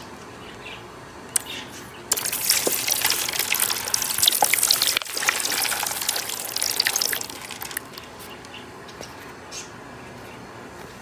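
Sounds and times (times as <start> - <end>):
liquid pouring into bucket: 2.1 - 8.0.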